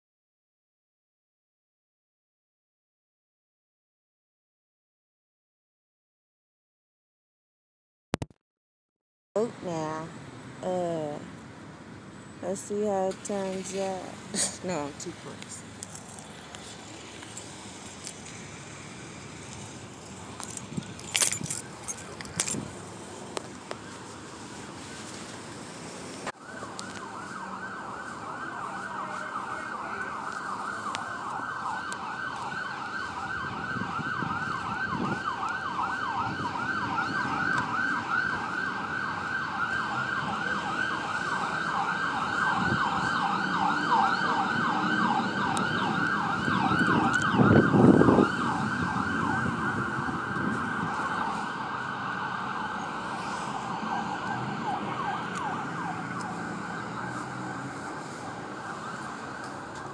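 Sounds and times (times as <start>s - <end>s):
siren in fast yelp: 26.4s - 57.2s.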